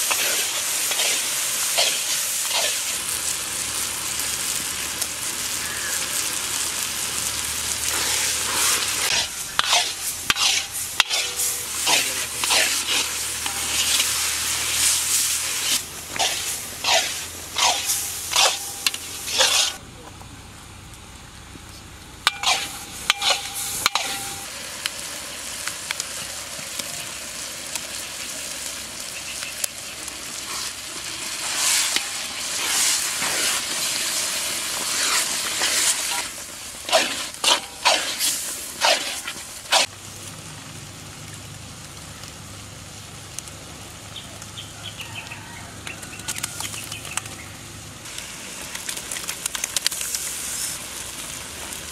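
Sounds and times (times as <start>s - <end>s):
metal ladle scraping pan: 0.0s - 2.9s, 7.9s - 19.8s, 22.2s - 24.5s, 34.8s - 39.9s
masala sizzling in oil: 0.0s - 19.8s, 20.8s - 51.9s.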